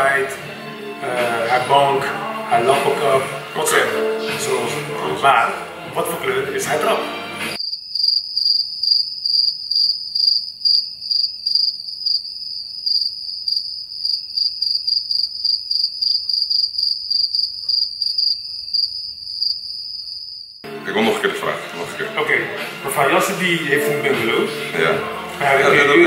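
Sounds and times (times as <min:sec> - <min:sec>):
crickets chirping: 0:07.6 - 0:20.6.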